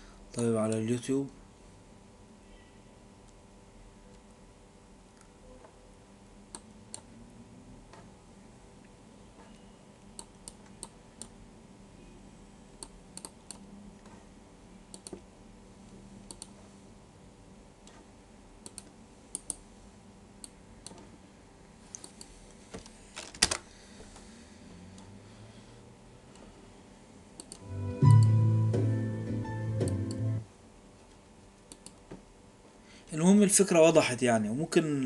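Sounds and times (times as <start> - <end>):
faint steady hum: 0.0 - 35.0
computer mouse clicks: 12.8 - 14.2, 14.9 - 15.2, 16.2 - 16.6, 18.6 - 19.6, 20.4 - 21.1, 21.9 - 22.3, 27.4 - 27.6, 31.7 - 32.1.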